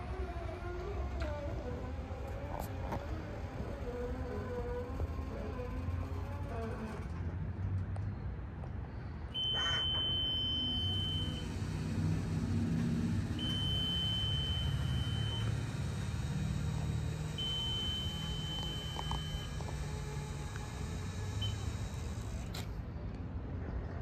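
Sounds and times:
high-pitched alarm beeps: 9.4s - 11.5s, 13.4s - 20.0s, 21.3s - 21.9s
pump humming: 9.4s - 22.6s.

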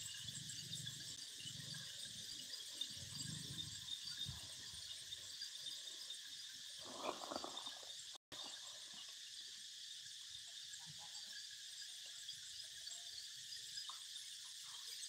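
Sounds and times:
insects chorus: 0.0s - 14.9s
rustling scrape: 6.8s - 7.9s.

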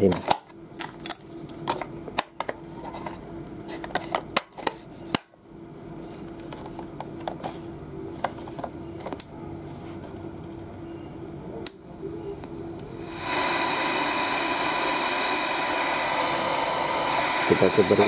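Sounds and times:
loud radio static hiss: 11.8s - 18.0s.

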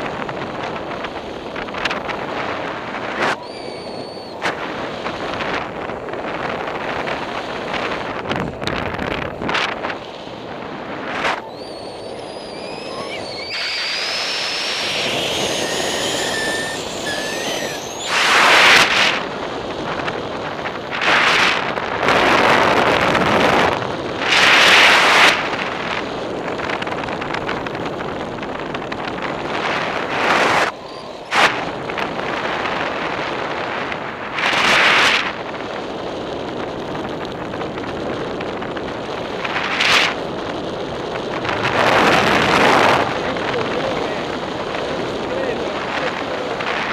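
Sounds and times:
wind rushing over microphone: 0.0s - 46.9s
high wavering whistle: 3.3s - 4.5s, 11.4s - 19.0s, 30.6s - 31.7s.

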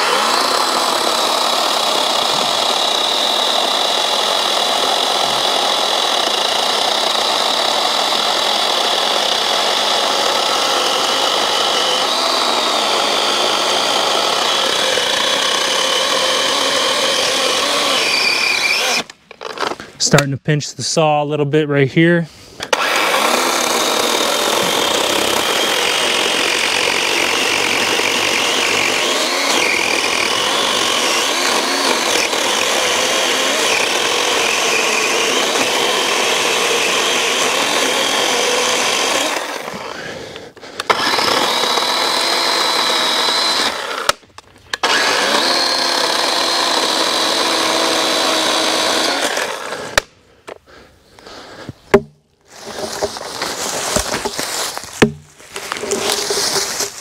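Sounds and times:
electric chainsaw whining: 0.0s - 19.9s, 22.6s - 50.6s
sharp knocks: 51.9s - 52.2s, 55.0s - 55.7s.

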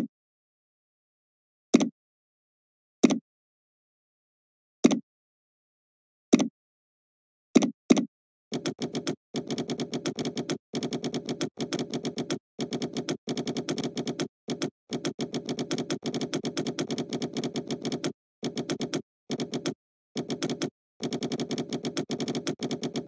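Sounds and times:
keyboard typing: 7.6s - 23.0s.

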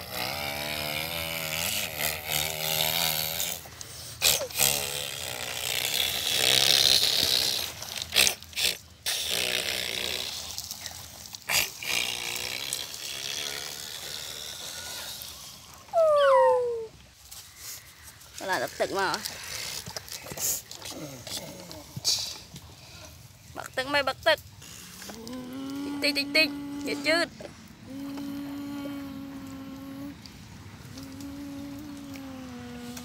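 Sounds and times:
toy trucks scraping dirt: 0.0s - 15.9s, 23.9s - 33.0s
child imitating truck engine: 15.9s - 16.9s, 24.6s - 33.0s.

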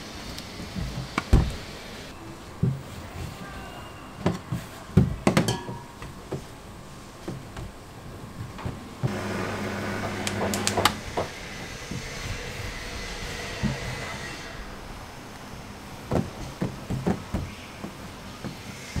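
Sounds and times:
dough sheeter motor humming: 6.4s - 19.0s
machine clicks: 9.1s - 11.3s.

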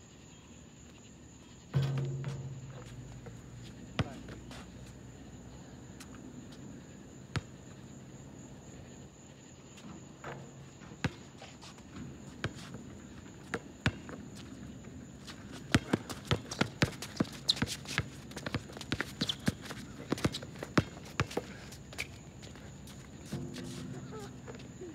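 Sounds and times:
basketball bouncing on asphalt: 1.8s - 5.4s, 7.3s - 7.6s, 13.5s - 14.2s, 15.6s - 22.0s
steady high whine: 1.8s - 6.6s.

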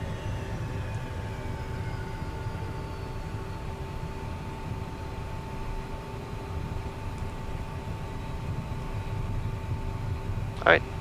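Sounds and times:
jet engines idling rumble and whine: 0.0s - 11.0s.

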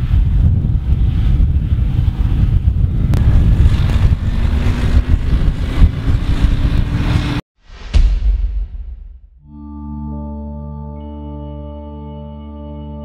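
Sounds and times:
wind rumble on microphone: 0.0s - 7.4s.

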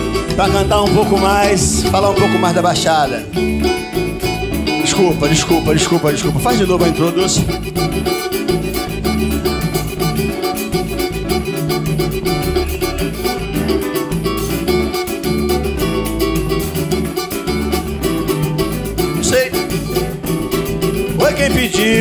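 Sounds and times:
person singing: 0.0s - 2.7s, 21.2s - 22.0s
acoustic guitars strumming: 0.0s - 22.0s.

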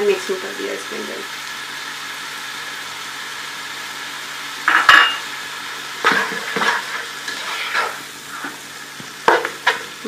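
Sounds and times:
food sizzling in a frying pan: 0.0s - 10.0s
utensil scraping a pan: 6.0s - 8.6s.

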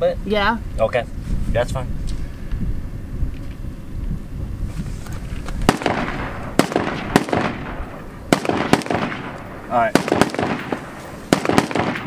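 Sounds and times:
gunshots with echo: 5.7s - 12.0s.

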